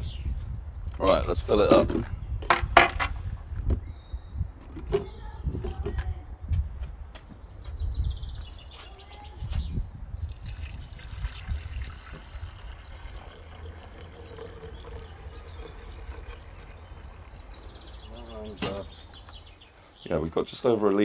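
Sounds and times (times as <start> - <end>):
water pouring into kettle: 10.2 - 18.6.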